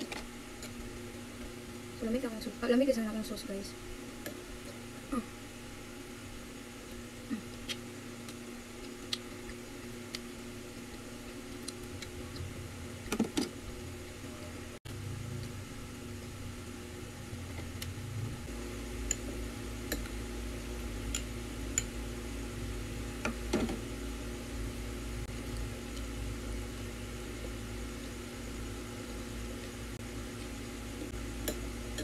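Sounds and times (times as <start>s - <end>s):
electric fan humming: 0.0s - 32.0s
low rumble: 13.8s - 18.7s.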